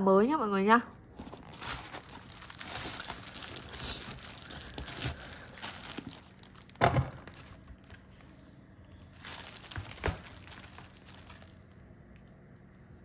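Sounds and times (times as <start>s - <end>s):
leather shoe rustling: 1.2s - 6.5s.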